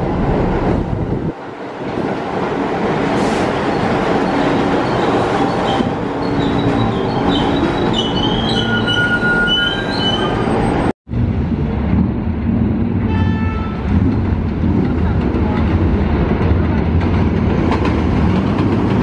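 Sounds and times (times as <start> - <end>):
train rumble: 0.0 - 19.0
train wheels squealing: 3.4 - 10.9.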